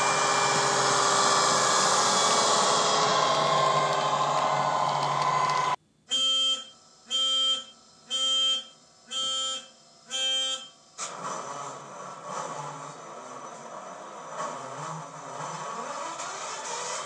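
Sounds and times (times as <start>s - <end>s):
diesel locomotive engine sound: 0.0s - 5.8s, 10.7s - 17.0s
electronic warning beeps: 6.1s - 10.8s.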